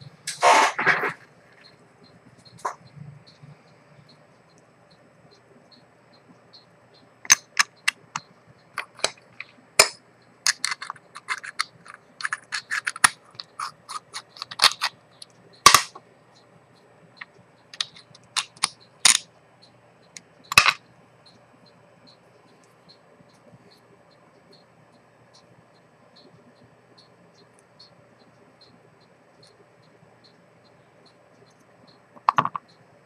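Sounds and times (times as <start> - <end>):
watchmaker's tools clicking and tapping: 7.2 - 16.0, 17.2 - 19.3, 20.1 - 20.8, 32.2 - 32.7.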